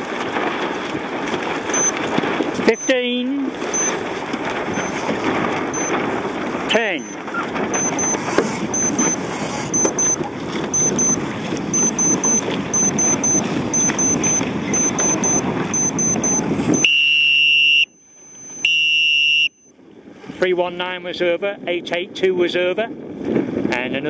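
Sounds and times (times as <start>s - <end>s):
water noise: 0.0s - 20.5s
wind: 0.0s - 24.0s
short high timer beeps: 1.7s - 2.0s, 2.7s - 3.0s, 3.7s - 4.0s, 4.7s - 5.0s, 5.8s - 6.0s, 6.7s - 19.7s.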